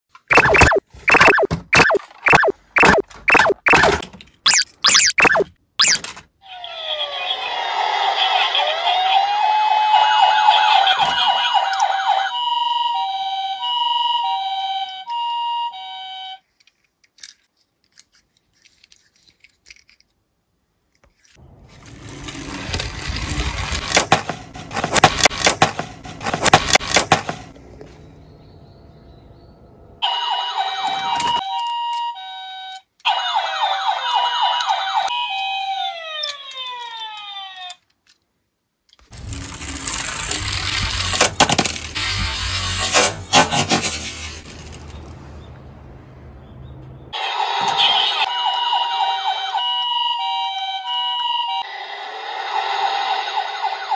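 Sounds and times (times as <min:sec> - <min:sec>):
electronic two-tone siren effect: 0:00.3 - 0:06.0, 0:47.2 - 0:51.8
falling-pitch sound effect: 0:00.3 - 0:06.0
toy car rolling on wooden board: 0:21.6 - 0:27.5, 0:39.1 - 0:45.2.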